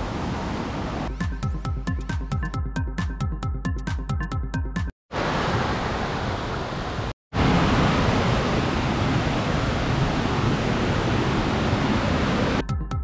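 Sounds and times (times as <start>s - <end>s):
water rushing over rocks: 5.1s - 12.6s.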